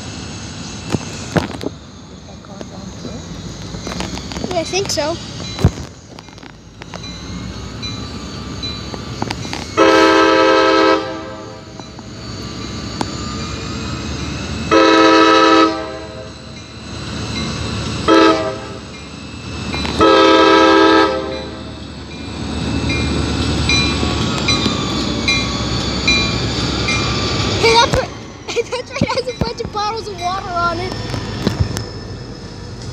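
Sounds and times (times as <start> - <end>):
locomotive engine rumble: 0.0 - 32.9
crossing warning bell ringing: 1.6 - 32.9
locomotive air horn blasts: 9.8 - 11.7, 14.7 - 16.3, 18.0 - 18.9, 20.0 - 21.6.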